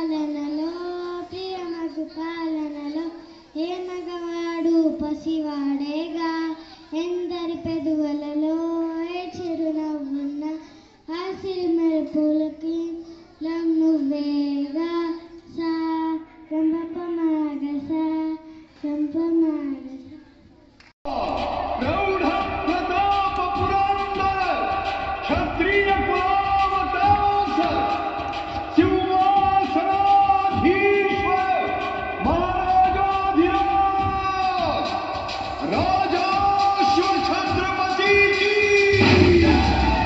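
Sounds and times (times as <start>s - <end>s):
girl singing unaccompanied: 0.0s - 20.2s.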